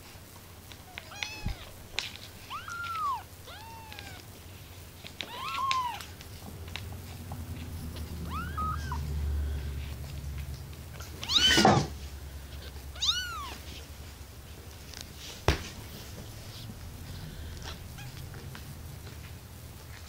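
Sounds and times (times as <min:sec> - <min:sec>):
kittens mewing: 0:00.7 - 0:04.4, 0:05.0 - 0:13.9, 0:17.0 - 0:19.2.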